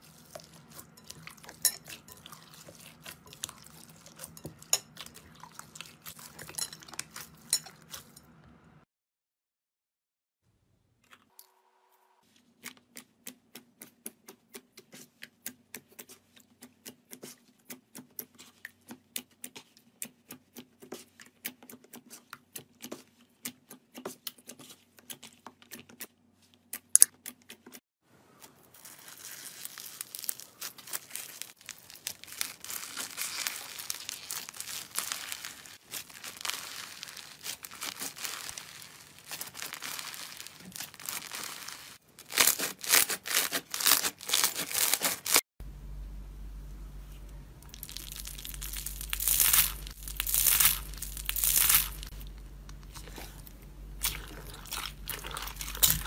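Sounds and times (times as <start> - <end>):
foam beads crackling: 28.4 - 45.4, 47.6 - 56.0.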